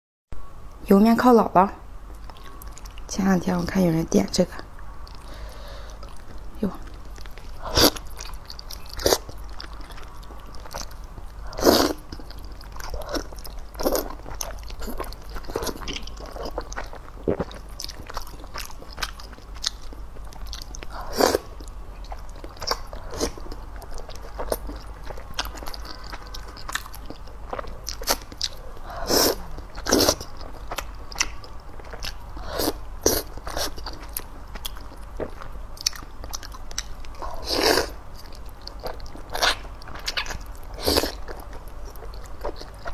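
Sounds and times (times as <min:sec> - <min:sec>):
slurping and chewing noodles: 0:05.1 - 0:42.9.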